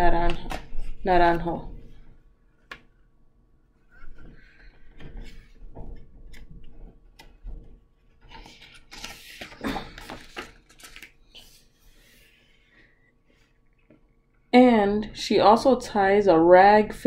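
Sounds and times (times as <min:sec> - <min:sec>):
paper rustling: 0:03.9 - 0:12.4
page turning: 0:08.0 - 0:11.7.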